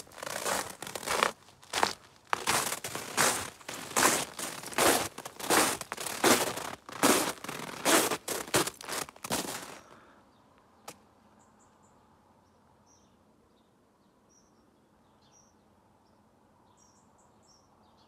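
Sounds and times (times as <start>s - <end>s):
boots crunching through snow: 0.0s - 9.9s.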